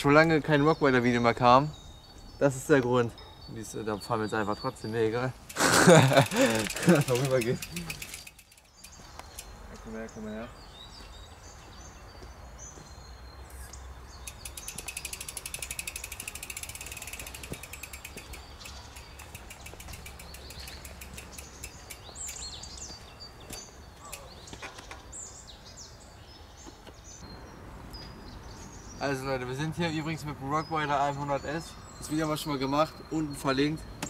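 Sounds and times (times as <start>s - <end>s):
birds chirping: 0.0s - 34.0s
bicycle freewheel hub ticking: 5.4s - 9.4s, 14.2s - 22.6s.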